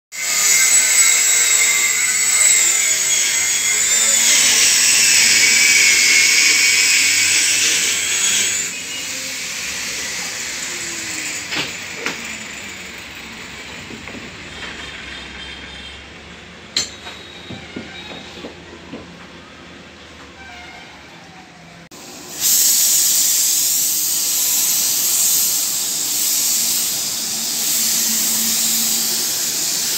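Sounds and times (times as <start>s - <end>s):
workshop noise: 0.1s - 29.9s
power tool whining: 0.2s - 15.9s, 22.4s - 29.9s.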